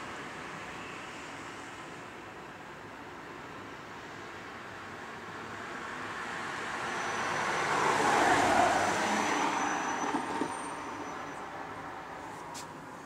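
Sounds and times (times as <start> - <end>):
road vehicle passing: 4.7 - 13.0.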